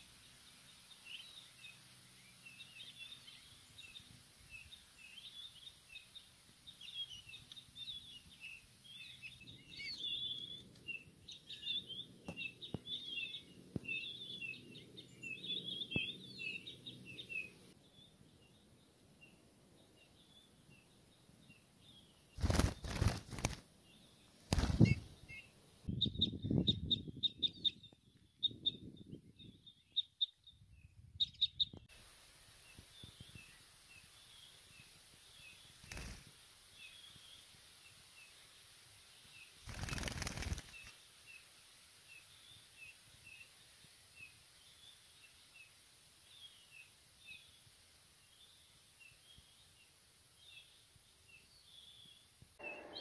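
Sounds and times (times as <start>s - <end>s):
high chirps of small birds: 0.0s - 32.0s, 32.6s - 53.0s
small bird wings flapping: 22.4s - 23.7s, 24.4s - 25.1s, 35.8s - 36.4s, 39.6s - 41.0s.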